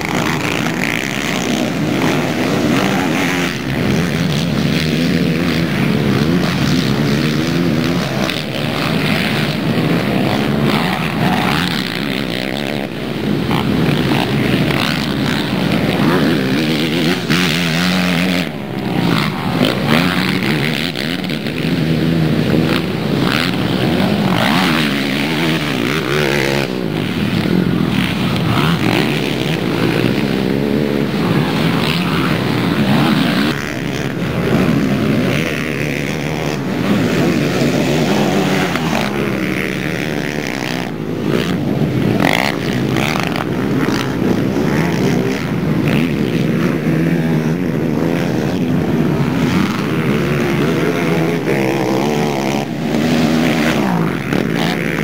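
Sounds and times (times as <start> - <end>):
quad bike engines revving: 0.0 - 55.0.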